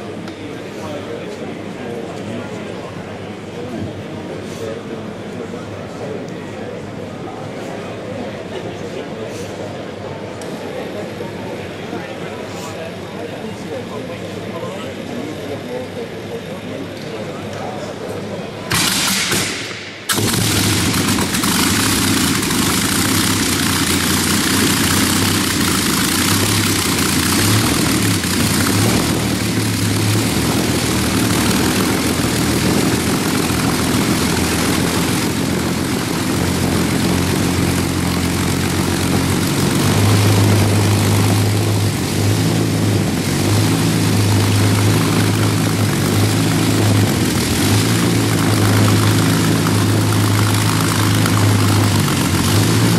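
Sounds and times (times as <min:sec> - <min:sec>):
aircraft engine droning: 0:16.9 - 0:52.9.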